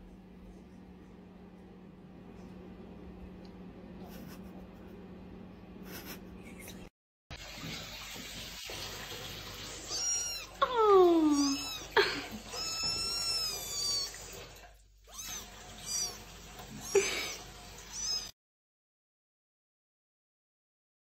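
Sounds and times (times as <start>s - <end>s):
kitten meowing: 9.7s - 14.2s, 15.1s - 17.0s, 17.9s - 18.3s.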